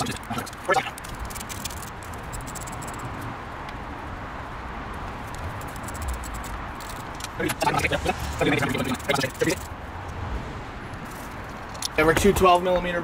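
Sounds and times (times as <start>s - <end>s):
rustling and scraping: 0.0s - 3.3s, 5.0s - 9.8s, 10.9s - 12.2s.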